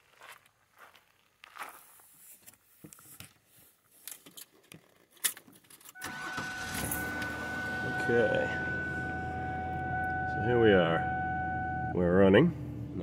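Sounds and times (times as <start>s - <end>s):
clicks and rustles: 2.4s - 6.0s
car keys jangling: 5.1s - 10.3s
steady tone: 6.0s - 13.0s.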